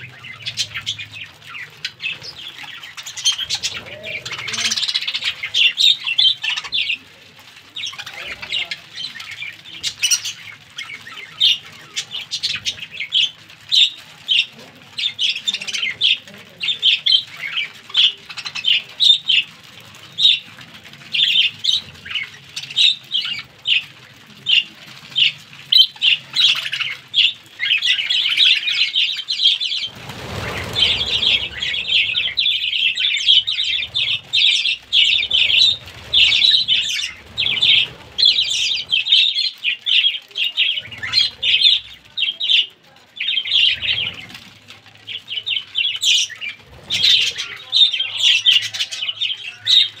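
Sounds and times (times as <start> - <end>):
budgerigars chattering: 0.0 - 7.0, 25.2 - 44.3.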